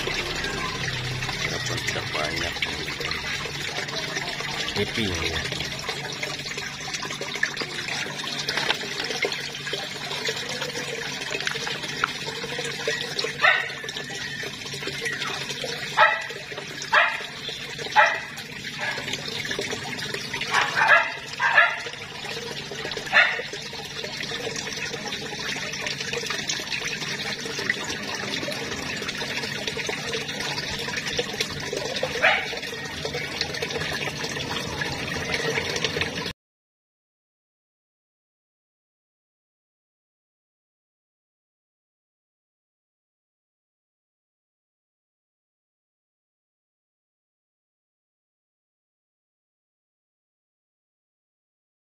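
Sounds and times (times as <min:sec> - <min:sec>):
running water: 0:00.0 - 0:36.3
dog barking: 0:13.4 - 0:13.8, 0:16.0 - 0:17.3, 0:17.9 - 0:19.1, 0:20.5 - 0:21.9, 0:23.1 - 0:23.5, 0:32.2 - 0:32.6.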